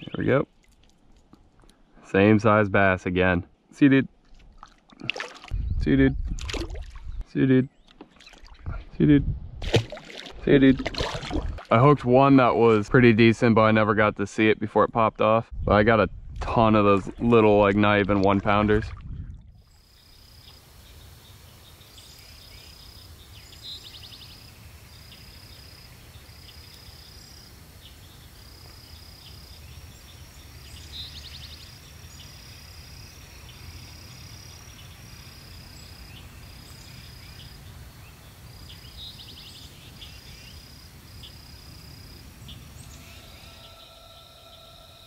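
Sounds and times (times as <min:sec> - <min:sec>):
high-pitched pulsing insect call: 0:19.6 - 0:45.0.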